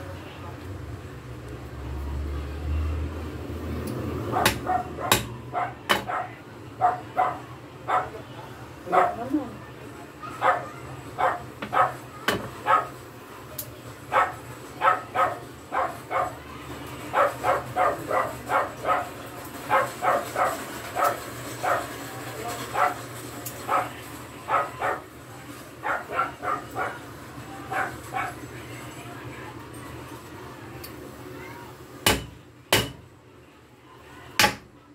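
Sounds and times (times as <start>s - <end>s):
dog barking: 4.3s - 8.2s, 8.9s - 9.3s, 10.2s - 13.0s, 14.1s - 16.4s, 17.1s - 21.9s, 22.7s - 23.0s, 23.7s - 25.1s, 25.8s - 27.1s, 27.7s - 28.4s.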